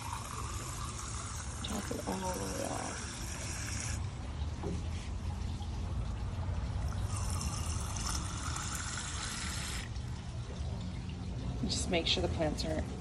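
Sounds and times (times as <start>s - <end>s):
hose stream hissing into jar: 0.0s - 4.1s, 7.0s - 10.0s.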